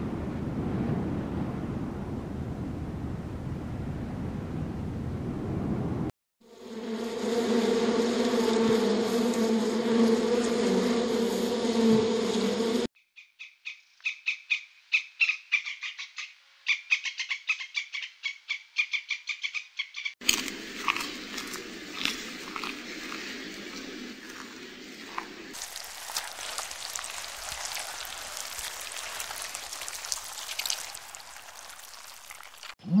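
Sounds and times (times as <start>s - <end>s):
squirrel crunching seeds: 20.2s - 32.7s.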